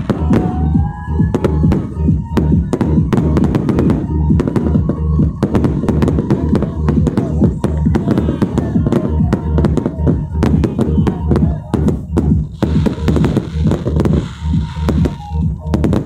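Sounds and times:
fireworks bursting: 0.0s - 16.0s
loud music with pulsing bass: 0.0s - 16.0s.

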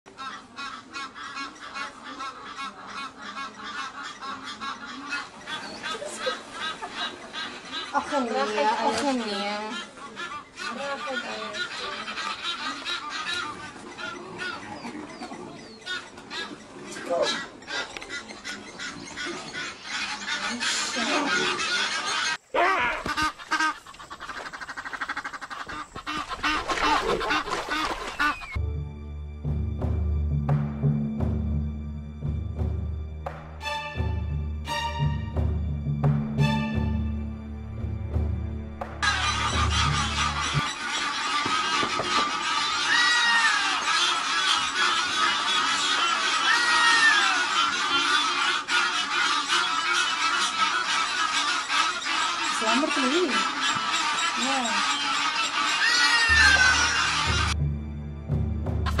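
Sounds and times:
geese honking: 0.1s - 28.6s, 33.2s - 57.8s, 58.6s - 59.0s
fast short repeated animal calls: 20.6s - 28.6s
animal calls rising and falling: 38.8s - 57.6s.

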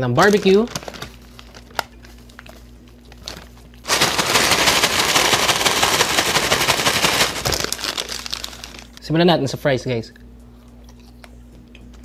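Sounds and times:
fries rattling in paper bag: 0.0s - 9.0s
paper bag rustling: 0.2s - 2.6s, 3.2s - 9.0s.

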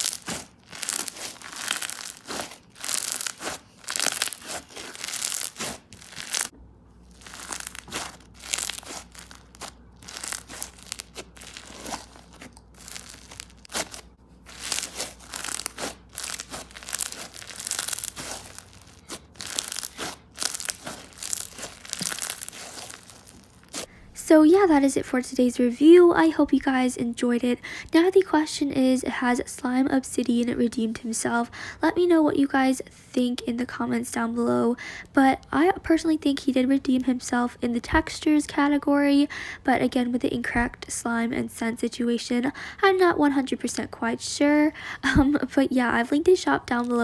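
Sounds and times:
bead slime crackling pops: 0.0s - 6.5s, 7.2s - 23.9s.

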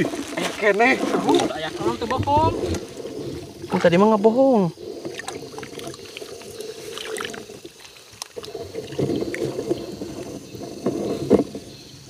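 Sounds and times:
water splashing: 0.0s - 11.7s
hands sloshing in muddy water: 4.8s - 10.3s.

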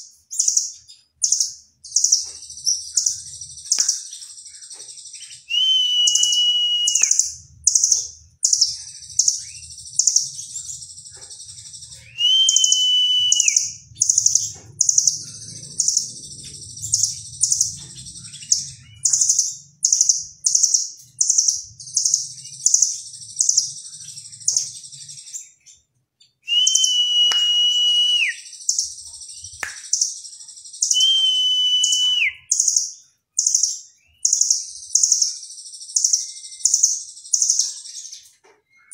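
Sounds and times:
bird long whistles dropping in pitch: 5.5s - 7.2s, 12.2s - 13.7s, 26.5s - 28.4s, 30.9s - 32.4s.

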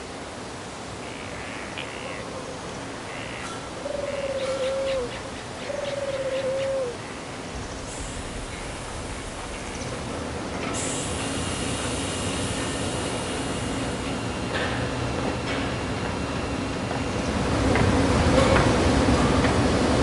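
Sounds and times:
steady hiss: 0.0s - 18.3s
bird calling: 1.0s - 7.3s.

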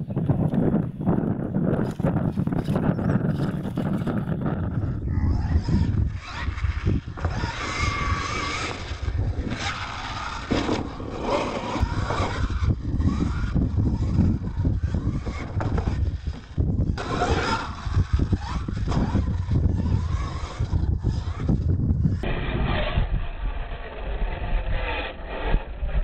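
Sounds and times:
tyres scrabbling on dirt: 1.6s - 22.2s
toy truck motor whining: 2.6s - 22.8s.

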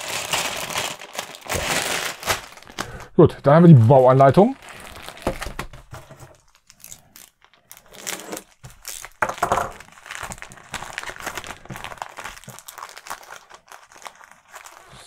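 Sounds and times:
plastic sleeve crinkling and tearing: 0.0s - 3.1s, 3.7s - 15.0s.

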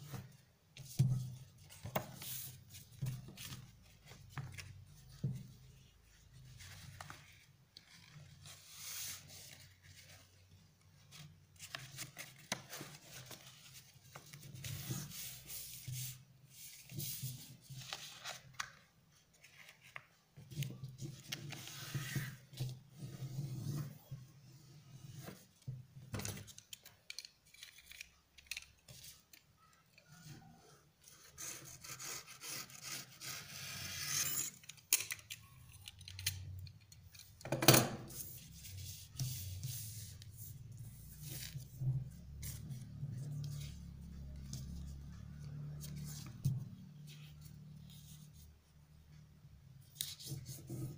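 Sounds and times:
paper rustling as folded: 1.5s - 10.4s, 11.0s - 22.7s, 38.1s - 48.4s.

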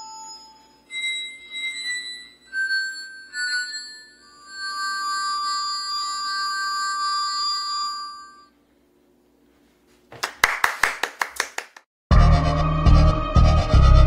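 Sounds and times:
rubbed wine glasses ringing: 0.0s - 8.5s
hand claps: 10.1s - 11.9s
loud music: 12.1s - 14.0s.

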